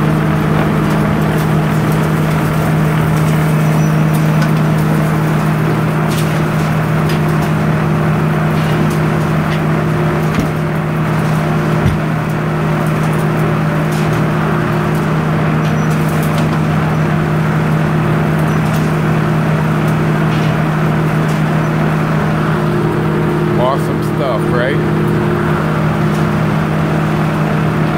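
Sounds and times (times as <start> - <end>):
sawmill power unit running: 0.0 - 27.9
log knocking onto carriage: 10.2 - 10.7, 11.8 - 12.2.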